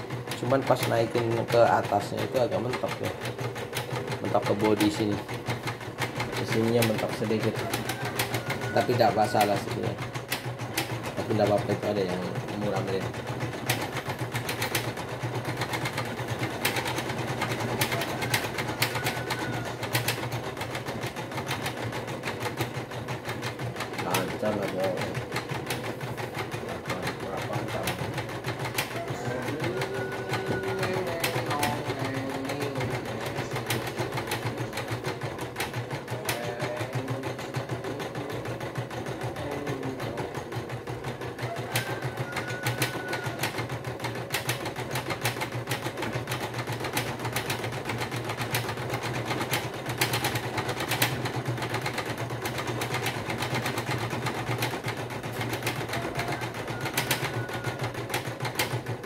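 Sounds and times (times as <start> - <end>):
motor hum: 0.0 - 40.3
embroidery machine needle clatter: 0.0 - 59.0.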